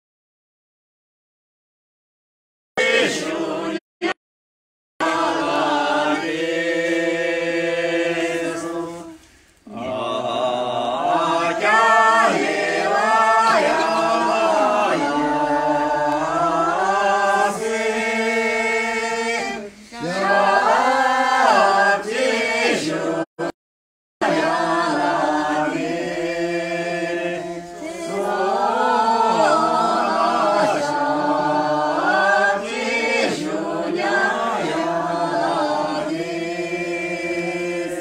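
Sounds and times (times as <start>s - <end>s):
group singing without instruments: 2.8s - 4.2s, 5.0s - 23.6s, 24.2s - 38.0s.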